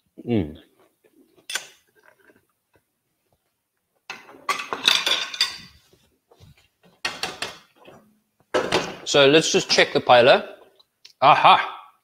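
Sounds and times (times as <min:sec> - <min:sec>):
ceramic dishes clinking and clattering: 0:04.1 - 0:05.8.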